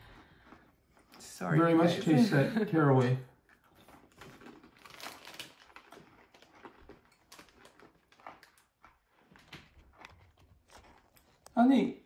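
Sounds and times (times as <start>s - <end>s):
crunching pretzel bites: 3.6s - 11.6s
plastic wrapper crinkling: 3.6s - 11.6s.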